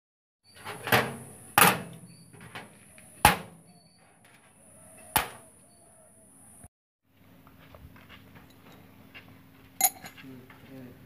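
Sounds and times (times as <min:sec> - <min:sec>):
metal clink: 0:09.8 - 0:10.3.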